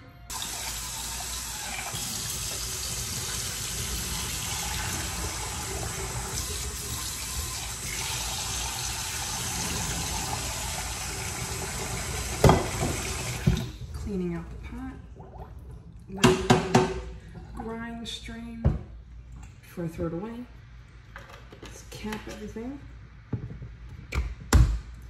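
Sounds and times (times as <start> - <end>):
tap running into sink: 0.3 - 13.7
pot being rinsed: 0.3 - 14.1.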